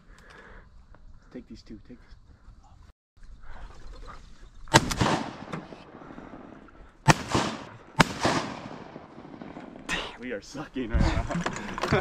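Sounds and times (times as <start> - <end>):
shotgun shots echoing: 4.7 - 9.9.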